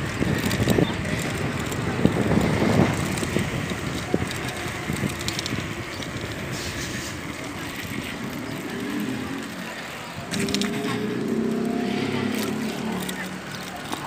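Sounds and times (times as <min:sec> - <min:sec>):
wind buffeting microphone: 0:00.0 - 0:12.5
bicycle tyres on concrete: 0:00.0 - 0:14.0.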